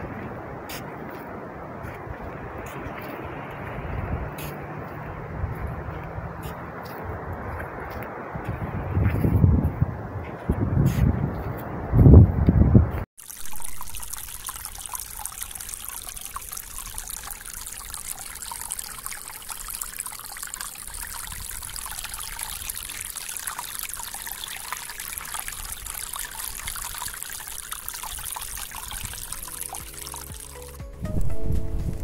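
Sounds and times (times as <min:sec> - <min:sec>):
seawater trickling and bubbling: 0:00.0 - 0:08.0, 0:13.2 - 0:30.8
wind rumbling on microphone: 0:00.0 - 0:13.1, 0:28.2 - 0:29.8, 0:31.0 - 0:32.0.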